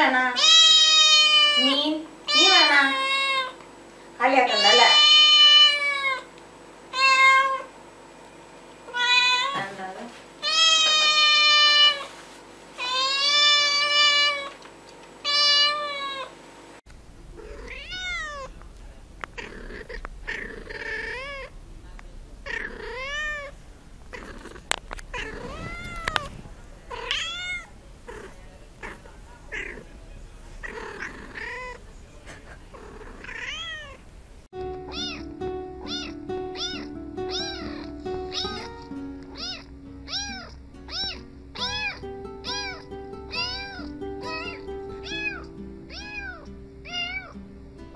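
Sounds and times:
kitten meowing loudly: 0:00.4 - 0:01.7, 0:04.5 - 0:06.3, 0:06.9 - 0:07.7, 0:08.9 - 0:09.6, 0:10.4 - 0:12.0, 0:12.8 - 0:14.5, 0:15.2 - 0:16.3, 0:17.4 - 0:18.5, 0:19.4 - 0:21.5, 0:22.4 - 0:23.5, 0:25.1 - 0:26.3, 0:26.9 - 0:29.8, 0:33.2 - 0:34.0, 0:34.9 - 0:38.7, 0:39.3 - 0:47.3
cat meowing quickly: 0:17.5 - 0:18.5, 0:33.2 - 0:34.0.

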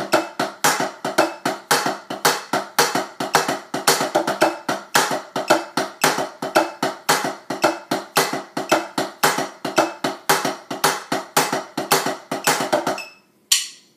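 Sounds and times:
drumsticks on practice pad: 0:00.0 - 0:13.9.

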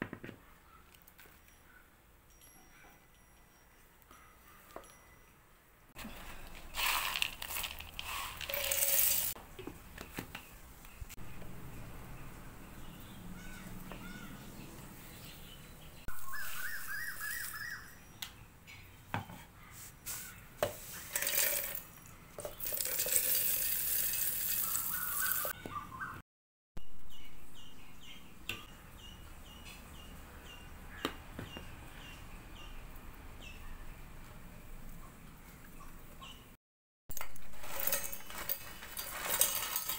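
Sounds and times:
powder pouring: 0:06.0 - 0:09.4, 0:20.9 - 0:21.8, 0:22.5 - 0:25.5, 0:37.3 - 0:39.9
dry nuts rattling in metal jar: 0:06.4 - 0:09.3, 0:21.1 - 0:21.8, 0:37.2 - 0:39.9
birds chirping faintly: 0:09.8 - 0:21.1.

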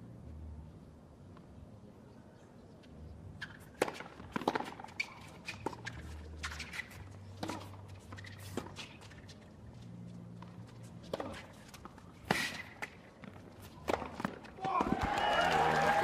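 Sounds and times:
racket hitting tennis ball: 0:03.7 - 0:06.8
shoe squeaks: 0:04.5 - 0:09.4.

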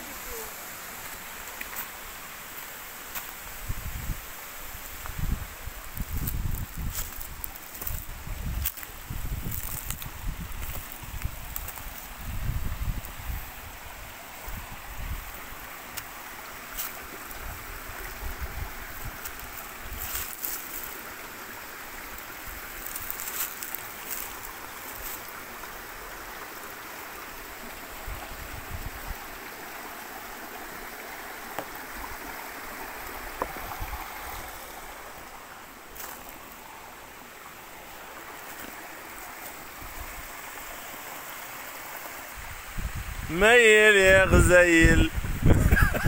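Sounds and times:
stream trickling over stones: 0:00.0 - 0:46.0.

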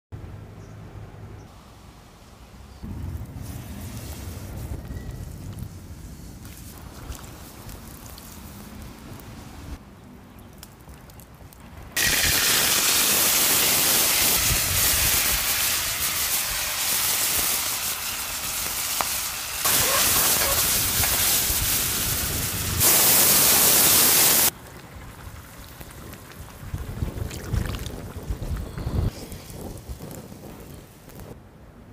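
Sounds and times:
spices sizzling in hot oil: 0:12.0 - 0:27.8.

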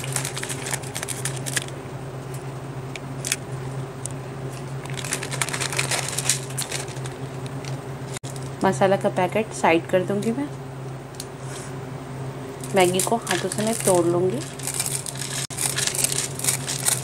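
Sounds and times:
plastic wrapper crinkling: 0:00.0 - 0:01.8, 0:04.8 - 0:08.5, 0:12.8 - 0:17.0
steady low hum: 0:00.0 - 0:17.0.

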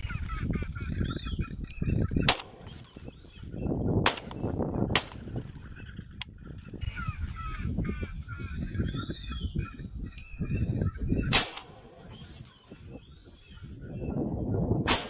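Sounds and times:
birds calling: 0:00.0 - 0:15.0
shotgun shots: 0:02.2 - 0:02.7, 0:04.0 - 0:05.4, 0:11.3 - 0:12.0.

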